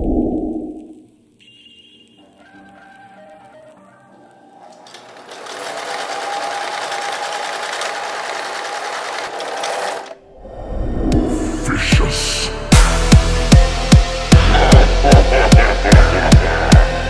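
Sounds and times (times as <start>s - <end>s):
sewing machine stitching: 4.7s - 10.2s
deep bass electronic music: 11.2s - 17.0s.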